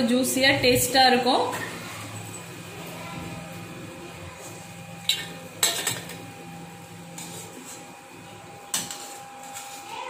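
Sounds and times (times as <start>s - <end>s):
metal spoon clinking on pan: 5.0s - 6.2s.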